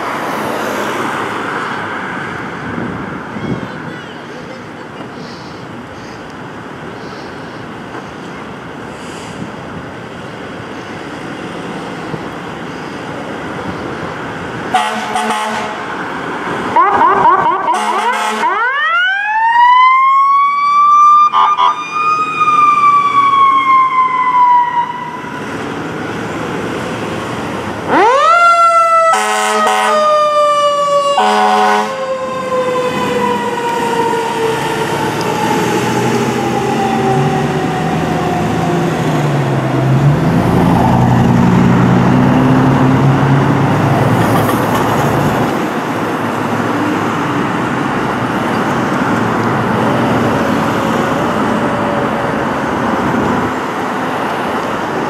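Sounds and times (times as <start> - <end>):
horn blasts: 14.7 - 15.9, 17.0 - 18.5, 29.1 - 30.0, 31.2 - 32.0
fire truck siren wailing: 14.7 - 26.8, 27.4 - 44.6
vehicle engine accelerating: 32.7 - 53.4.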